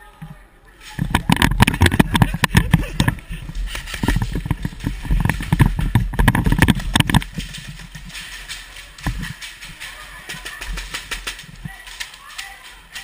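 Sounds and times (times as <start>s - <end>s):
running footsteps on concrete: 1.0s - 13.0s
scattered knocks: 1.1s - 3.2s, 3.9s - 7.9s.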